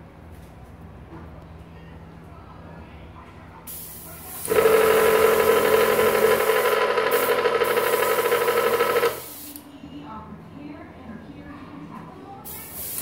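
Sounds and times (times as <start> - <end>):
air compressor motor humming: 3.7 - 9.6
air hissing: 6.0 - 9.6, 12.5 - 13.0.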